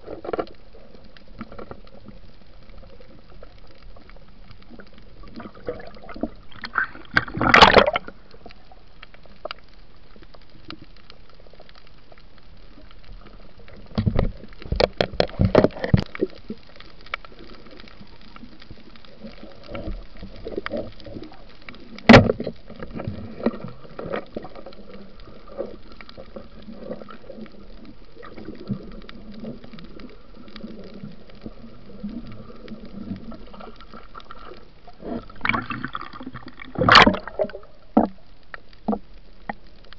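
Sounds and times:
underwater gurgling and bubbling: 0.0s - 39.9s
sharp knocks underwater: 5.7s - 8.2s, 13.9s - 16.2s, 22.0s - 24.2s, 35.1s - 38.2s.

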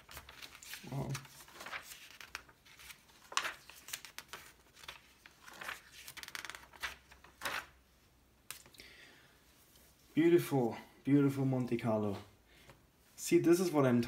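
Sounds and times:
magazine pages turning: 0.0s - 7.8s.

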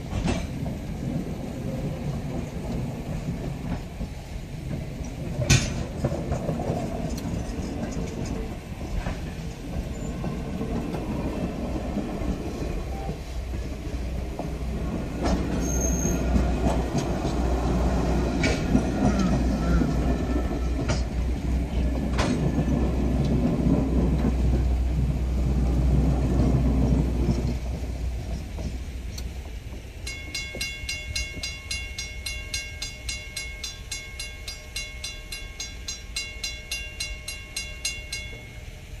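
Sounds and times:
train coaches rumbling past: 0.0s - 39.0s
crossing warning bell ringing: 29.9s - 39.0s.

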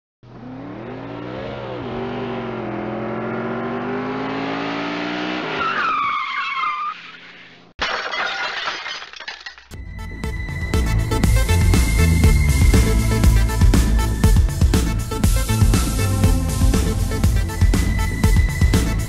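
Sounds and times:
car engine revving: 0.2s - 5.6s
tyres screeching: 5.5s - 7.7s.

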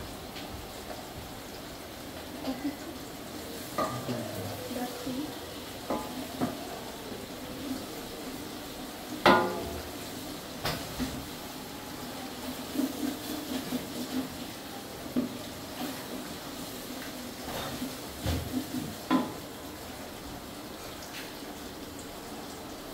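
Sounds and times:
onions sizzling in oil: 0.0s - 22.9s
spatula knocking on metal pot: 9.2s - 9.8s
spatula stirring and scraping: 12.3s - 19.4s.

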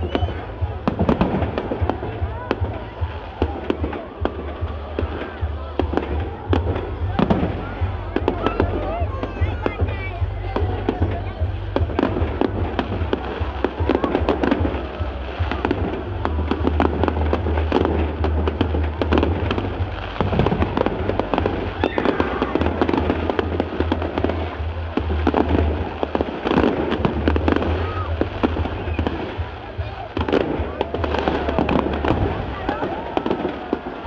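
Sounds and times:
fireworks bursting with bangs: 0.0s - 34.0s
fireworks crackling: 0.0s - 34.0s.

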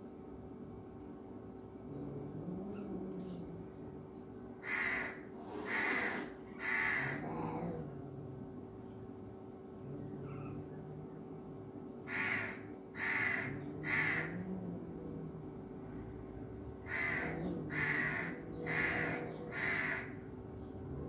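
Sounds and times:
crow cawing: 4.6s - 7.3s, 12.0s - 14.4s, 16.8s - 20.2s.

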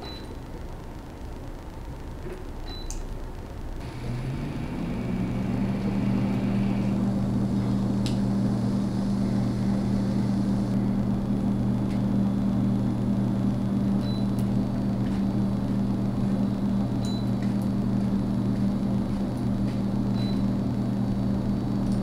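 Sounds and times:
electric motor hum: 3.8s - 17.0s.

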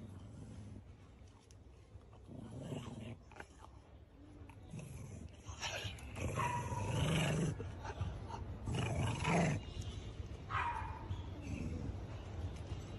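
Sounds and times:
dog growling: 2.2s - 3.7s, 4.7s - 9.7s.

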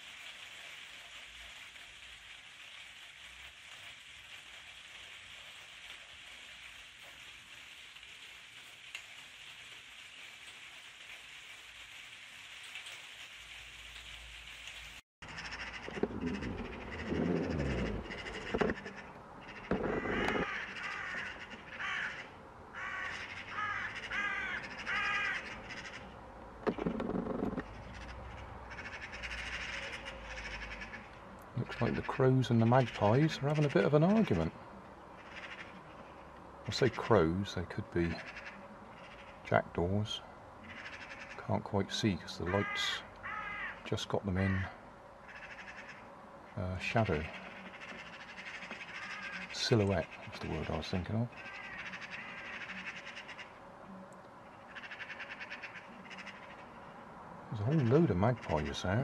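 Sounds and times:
rain pattering: 0.0s - 56.9s
magpies harsh calls and chatter: 15.2s - 53.6s, 54.5s - 59.0s.

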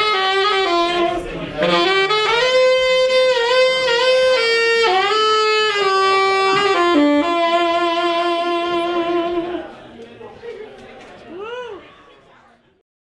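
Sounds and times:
solo saxophone melody: 0.0s - 9.7s.

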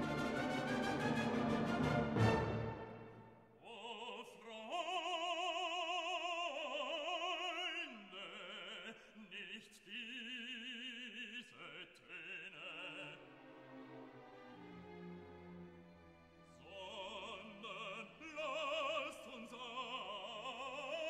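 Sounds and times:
operatic voice singing: 3.6s - 13.4s, 16.6s - 21.0s.

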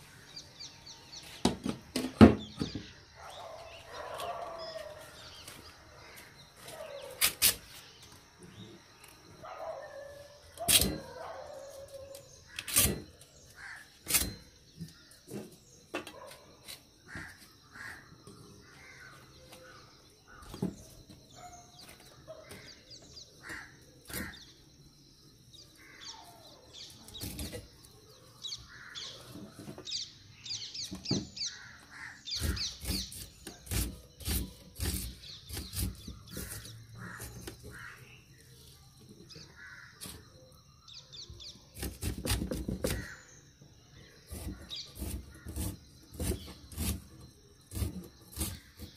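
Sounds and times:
small birds chirping: 0.0s - 48.9s
crows cawing: 13.6s - 14.0s, 17.1s - 19.2s, 23.4s - 24.5s, 28.7s - 29.2s, 31.5s - 32.7s, 36.5s - 38.2s, 39.5s - 40.0s
blade slicing leaves and chillies: 32.4s - 38.0s, 44.2s - 48.9s.

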